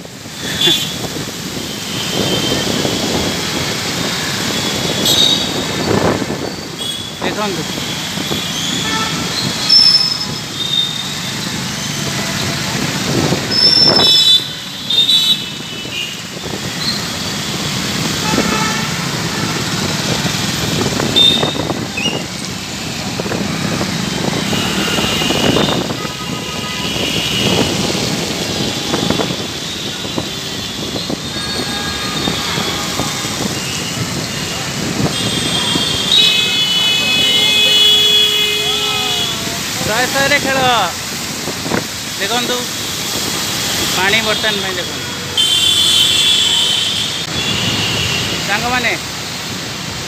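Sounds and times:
motorcycle and car engines: 16.2s - 38.3s
horns tooting: 18.0s - 40.9s, 42.4s - 48.9s.

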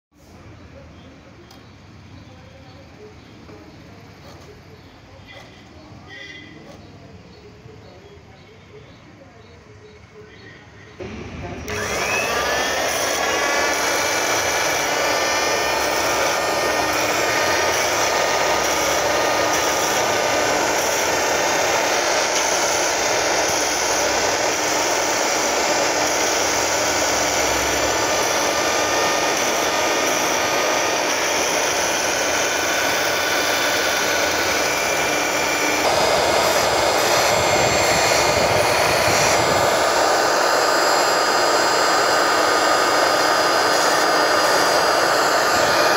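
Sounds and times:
cloth cutting machine whining: 11.0s - 45.9s.

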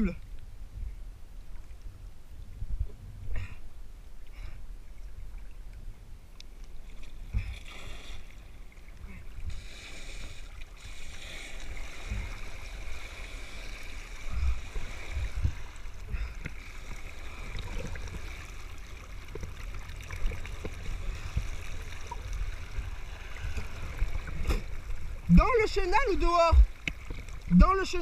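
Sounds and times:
water rushing and splashing: 6.6s - 28.0s.

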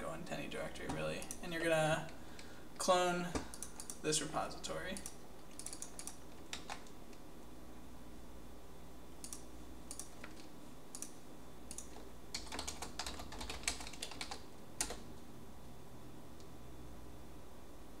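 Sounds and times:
computer keyboard typing: 4.9s - 7.0s, 9.2s - 15.1s.

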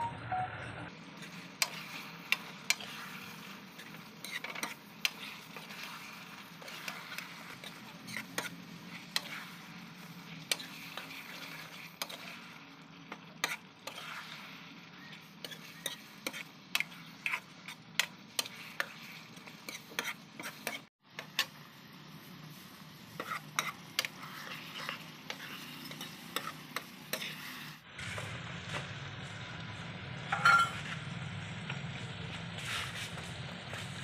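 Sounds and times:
faint sizzle: 0.0s - 34.0s
metal ladle scraping a pan: 1.2s - 21.5s, 23.2s - 27.8s, 30.4s - 30.9s.

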